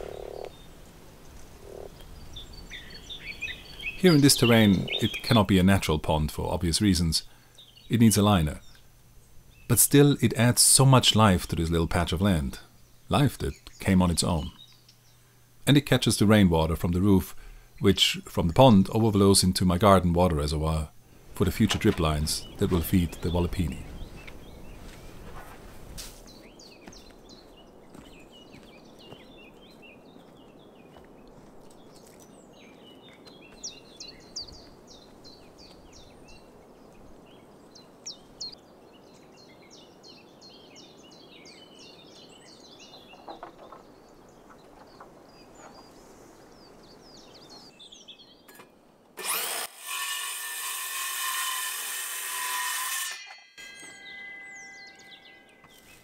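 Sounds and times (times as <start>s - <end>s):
birds chirping and singing: 0.0s - 20.8s, 21.4s - 25.6s, 26.2s - 48.8s, 52.5s - 56.0s
power tool whining: 49.2s - 53.5s.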